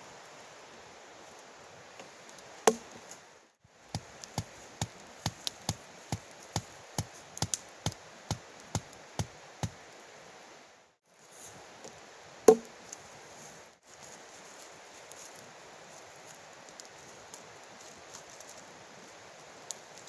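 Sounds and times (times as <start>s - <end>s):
blade chopping wood: 2.7s - 3.0s, 12.5s - 12.7s.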